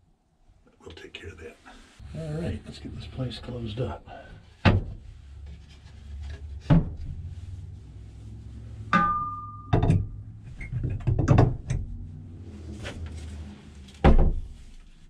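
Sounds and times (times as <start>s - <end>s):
wooden shutter thunking shut: 4.6s - 5.0s, 14.0s - 14.5s
metal rod clanking: 8.9s - 10.2s
quick knocks and rattles: 9.8s - 11.8s.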